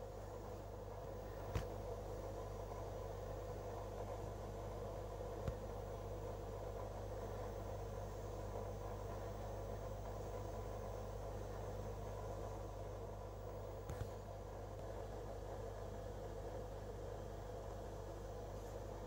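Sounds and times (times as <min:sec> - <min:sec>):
aquarium pump humming: 0:00.0 - 0:19.0
small click: 0:13.8 - 0:14.2.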